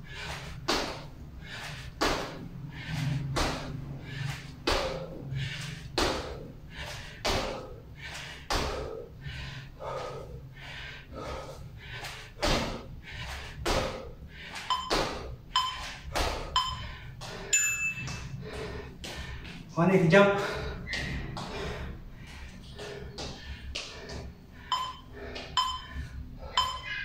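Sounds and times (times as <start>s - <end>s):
short electronic beeps: 14.7s - 15.9s, 16.6s - 16.8s, 24.7s - 27.0s.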